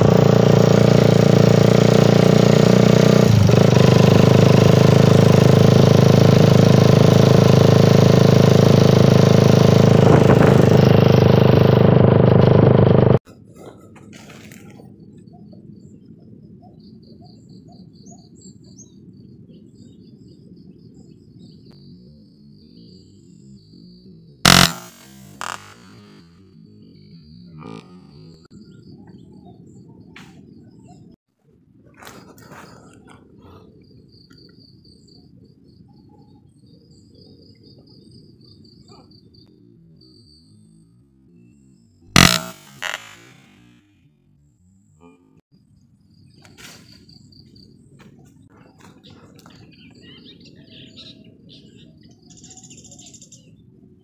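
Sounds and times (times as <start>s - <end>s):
lower bird calls: 46.1s - 54.0s.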